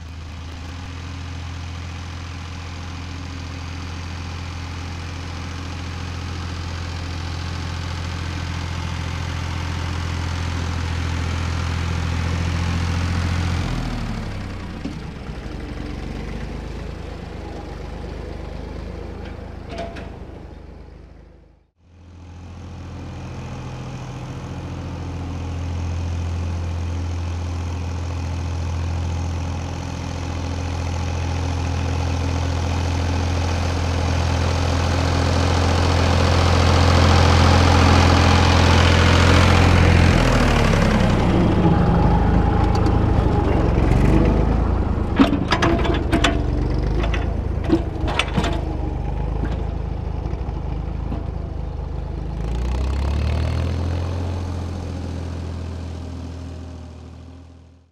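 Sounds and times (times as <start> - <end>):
roller rolling over soil: 0.0 - 1.2, 41.2 - 52.6
tractor diesel engine: 0.0 - 57.9.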